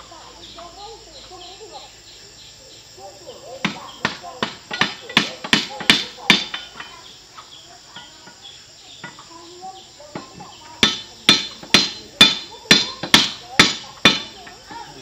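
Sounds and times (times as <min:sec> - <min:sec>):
hammer striking metal: 0:10.8 - 0:14.3.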